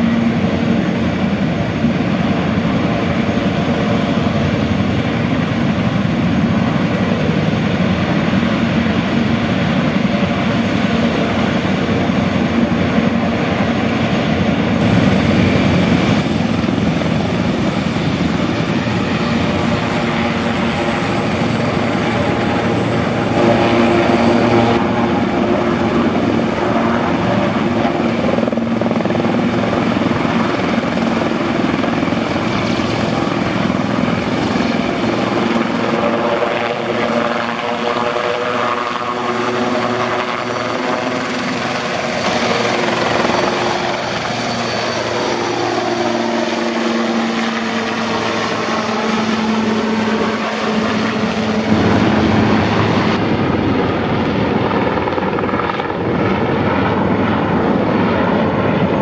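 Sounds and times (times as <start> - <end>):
helicopter rotor noise: 0.0 - 59.0
high turbine whine: 0.0 - 59.0.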